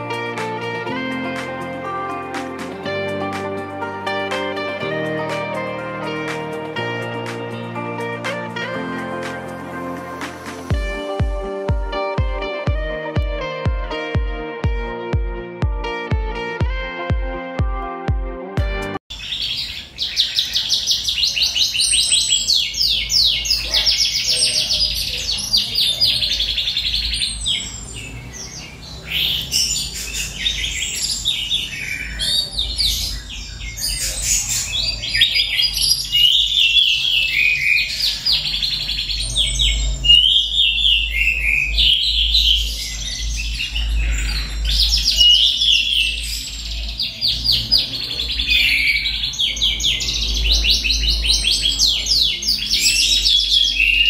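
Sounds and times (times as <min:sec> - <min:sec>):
canary singing trills: 0:19.1 - 0:54.0.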